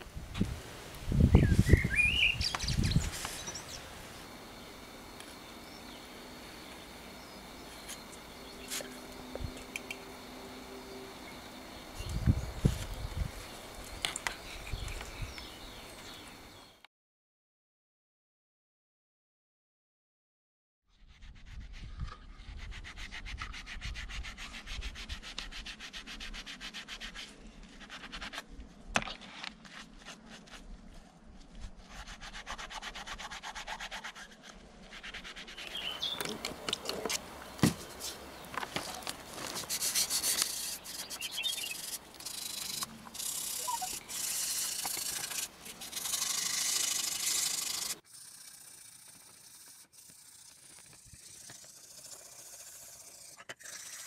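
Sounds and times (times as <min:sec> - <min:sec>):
wet sanding by hand: 0:21.2 - 0:28.4, 0:31.8 - 0:35.8, 0:39.5 - 0:54.0.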